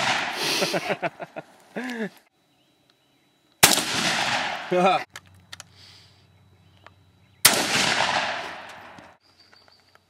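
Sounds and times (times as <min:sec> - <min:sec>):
gunshot echoing: 0:00.0 - 0:00.4, 0:03.6 - 0:05.0, 0:07.4 - 0:09.1
loud shotgun blast: 0:00.0 - 0:00.4, 0:03.6 - 0:04.8, 0:07.4 - 0:09.0.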